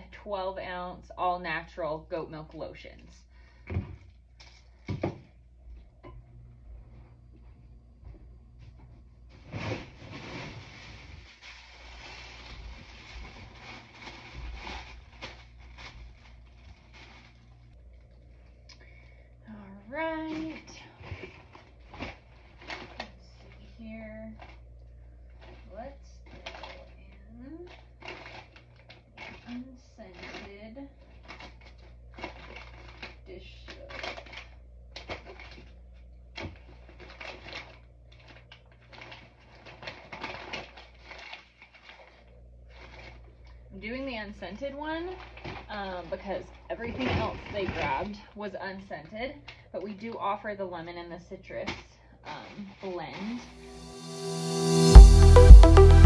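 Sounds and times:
steady low hum: 0.0s - 37.0s
packing materials rustling: 9.3s - 17.8s, 31.0s - 35.8s, 36.4s - 43.6s.

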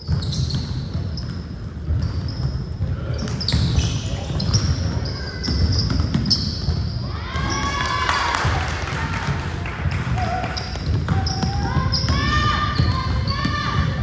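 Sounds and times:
basketball dribbling thumps: 0.0s - 7.6s
sneakers squeaking on hardwood: 0.0s - 7.7s, 10.5s - 14.0s.

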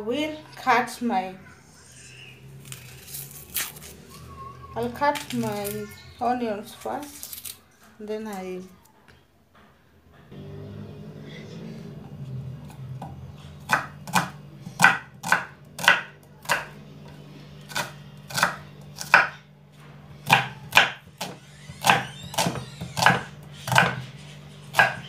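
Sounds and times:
knife chopping on wooden board: 13.0s - 16.7s, 17.7s - 19.4s, 20.2s - 25.0s.

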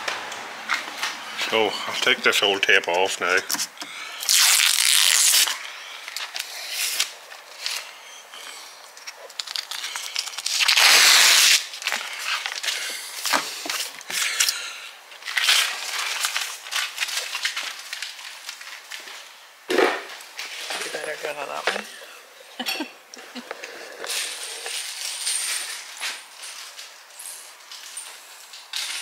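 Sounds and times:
masking tape peeling: 3.5s - 14.6s, 15.2s - 18.9s
tape crinkling in the hand: 4.2s - 14.6s, 15.2s - 19.4s.

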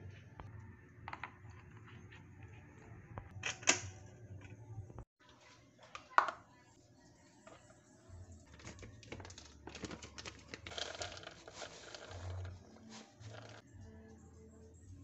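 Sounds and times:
plastic bag crinkling: 8.6s - 13.6s.

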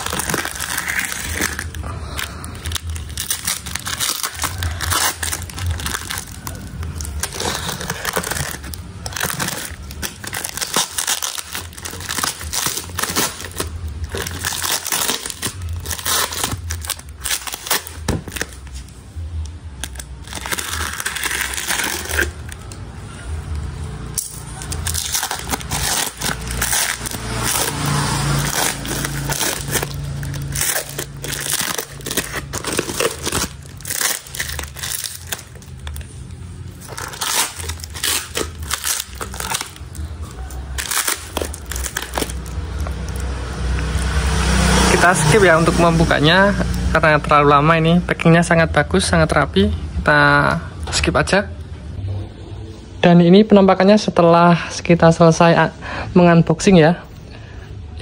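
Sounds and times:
box cutter slitting plastic and tape: 0.0s - 1.8s, 2.6s - 18.6s, 24.2s - 35.7s, 36.8s - 40.0s
plastic wrapping crinkling and ripping: 0.0s - 47.0s.

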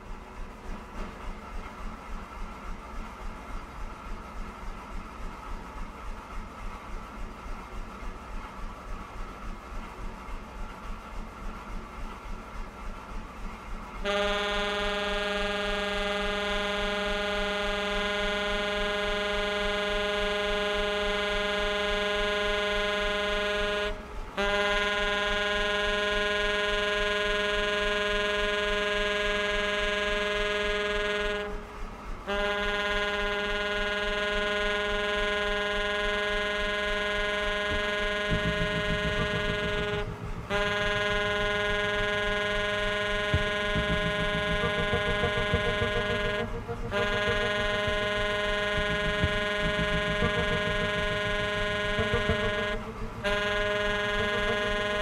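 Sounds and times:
tenor saxophone low note: 37.2s - 55.0s
electric bass pulsing: 37.6s - 55.0s.

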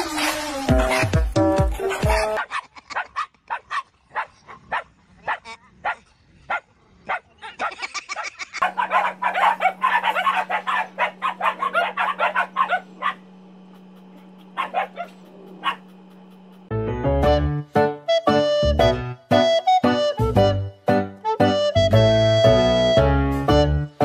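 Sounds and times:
dogs barking: 0.8s - 16.7s
steady low hum: 8.6s - 16.8s.

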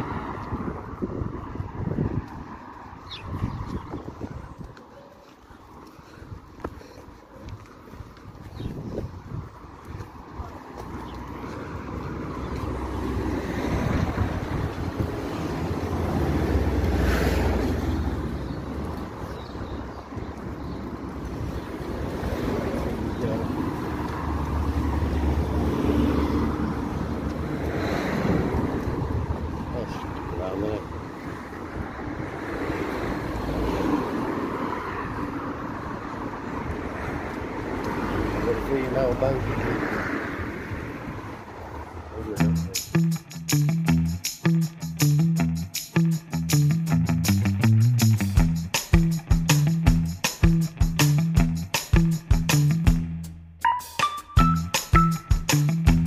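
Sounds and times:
wind on microphone: 0.0s - 4.8s, 7.6s - 10.5s, 13.5s - 16.3s, 26.8s - 34.0s
street noise: 0.0s - 56.0s.

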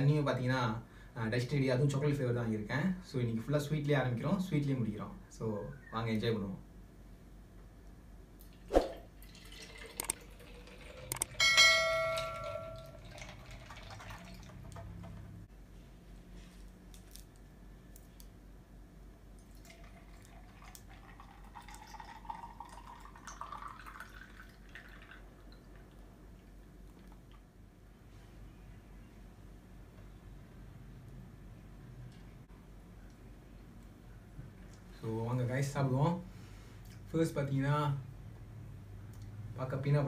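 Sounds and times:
milk pouring into glass jar: 9.1s - 11.4s, 12.2s - 15.2s, 19.4s - 26.0s
ringing glass clink: 11.3s - 13.0s.

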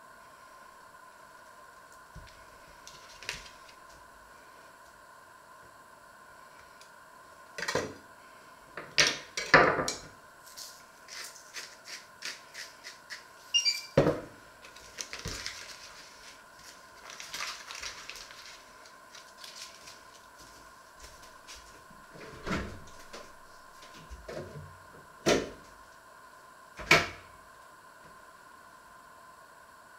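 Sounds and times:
butter paper rustling: 2.8s - 3.9s, 14.6s - 21.8s
knife scraping: 10.5s - 14.0s.

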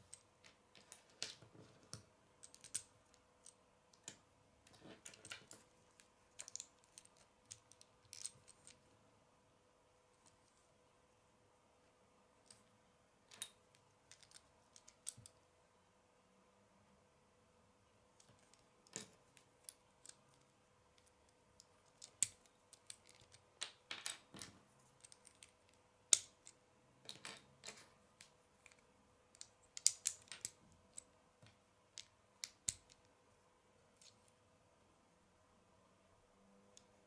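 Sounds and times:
plastic bricks clicking together: 0.8s - 4.2s, 28.2s - 31.1s.

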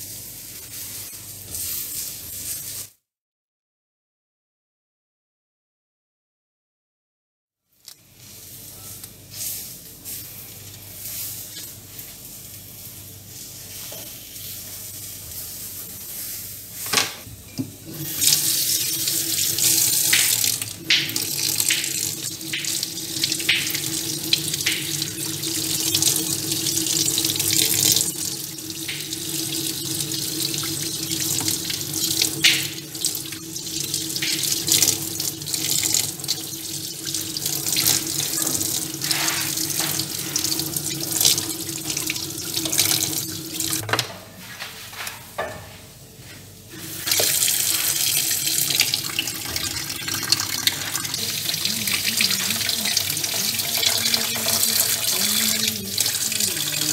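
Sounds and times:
tap water running: 16.9s - 44.1s, 46.7s - 56.9s
water splashes: 18.0s - 43.8s, 46.8s - 56.9s.

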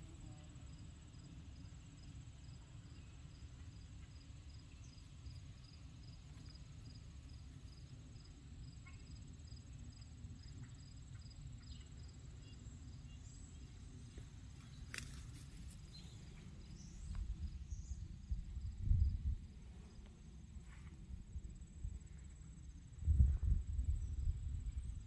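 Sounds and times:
high insect trill: 0.0s - 25.0s
insects chirping: 0.0s - 25.0s
low rumble: 16.1s - 25.0s.

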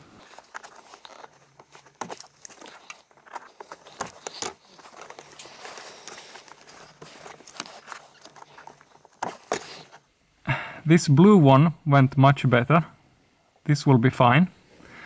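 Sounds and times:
wire crackling and rustling: 0.0s - 10.1s.

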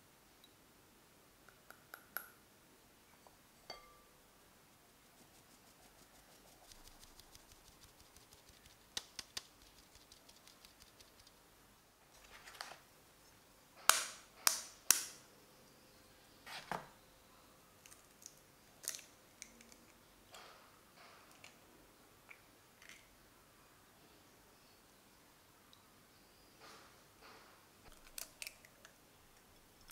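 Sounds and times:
flour sieve tapped and shaken: 5.5s - 11.3s
egg cracking: 27.8s - 29.9s
eggshell clicks: 27.9s - 29.9s.

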